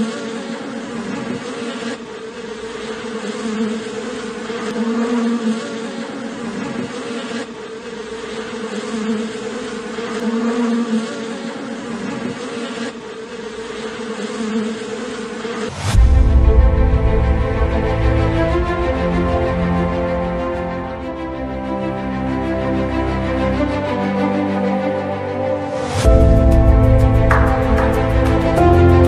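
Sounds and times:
bees buzzing: 0.0s - 29.0s
rising swoosh: 15.6s - 21.1s, 25.1s - 29.0s
loud music: 16.0s - 29.0s.

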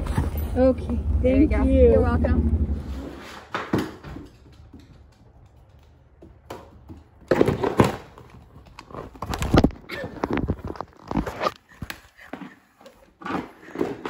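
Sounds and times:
dog claws clicking on hardwood floor: 3.7s - 9.6s.

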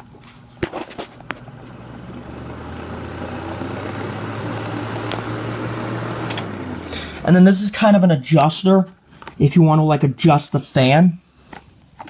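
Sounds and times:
desk fan motor hum and whoosh: 0.9s - 7.7s.

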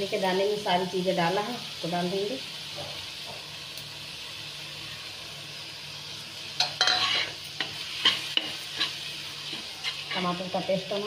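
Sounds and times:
spices sizzling in oil: 0.0s - 11.0s
spatula scraping a pan: 6.6s - 10.7s.

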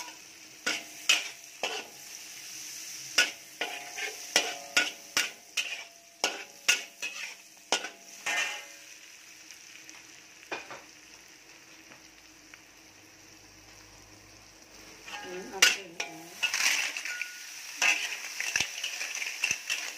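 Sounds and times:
metal ladle scraping a wok: 0.0s - 8.8s, 15.0s - 19.9s
food sizzling: 0.0s - 19.9s.

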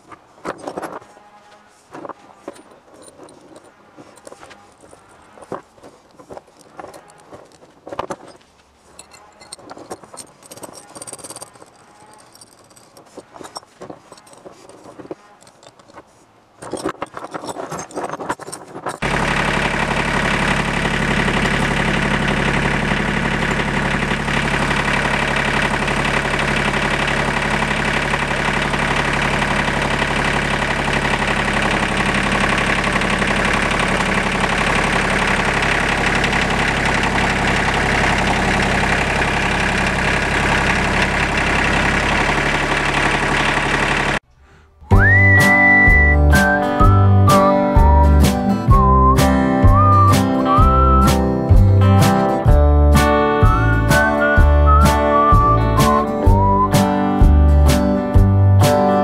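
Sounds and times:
tractor engine running: 0.0s - 59.0s
chain and hooks clinking: 0.4s - 1.1s, 1.9s - 19.1s.

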